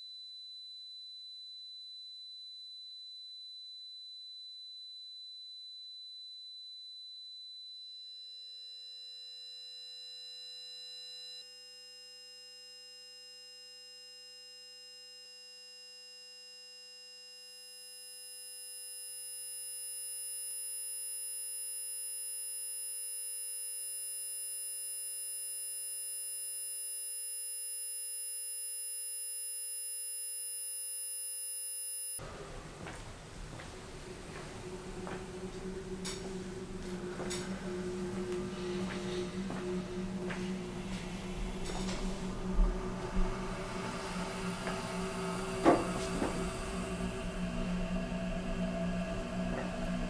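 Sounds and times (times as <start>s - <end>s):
electronic drone of steady tones: 8.8s - 32.2s, 34.0s - 50.0s
high tone: 34.0s - 50.0s.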